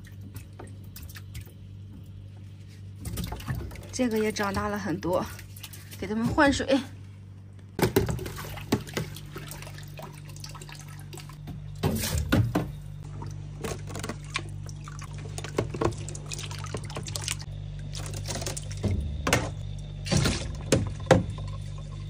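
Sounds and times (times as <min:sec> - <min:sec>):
low hum: 0:00.0 - 0:22.0
water sloshing and splashing: 0:00.0 - 0:22.0.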